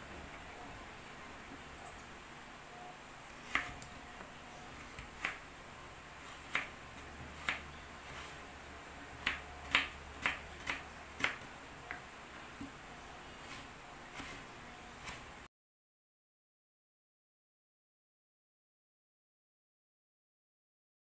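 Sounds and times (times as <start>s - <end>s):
knife cutting potato: 3.3s - 5.6s, 6.2s - 12.8s, 13.4s - 15.4s
knife tapping plastic cutting board: 4.9s - 5.4s, 6.4s - 6.8s, 7.4s - 7.7s, 9.2s - 12.0s.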